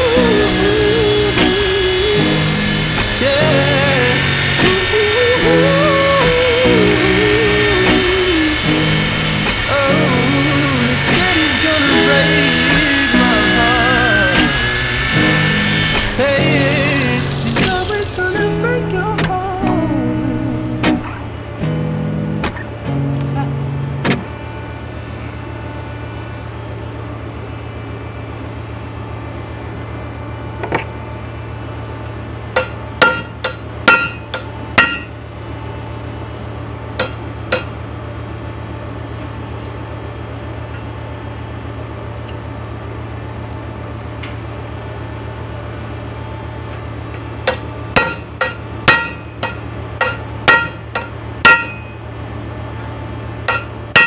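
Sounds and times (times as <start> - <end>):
hammer striking metal: 0.0 - 19.5, 32.5 - 35.2, 37.0 - 37.8, 47.4 - 52.0, 53.5 - 54.0
steady low hum: 0.0 - 54.0.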